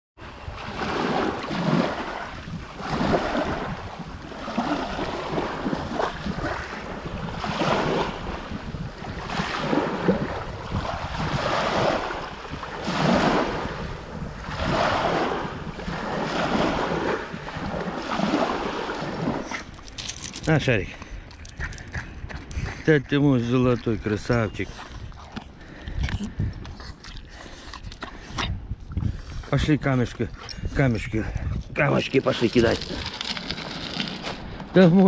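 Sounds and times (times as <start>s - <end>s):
waves washing over pebbles: 0.2s - 20.9s, 31.9s - 35.0s
wind rumbling on microphone: 0.2s - 35.0s.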